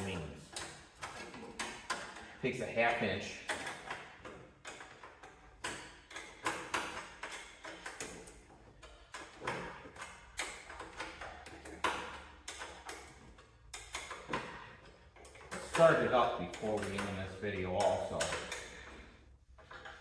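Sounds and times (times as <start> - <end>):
wrench clinking on bolt: 3.4 - 19.0.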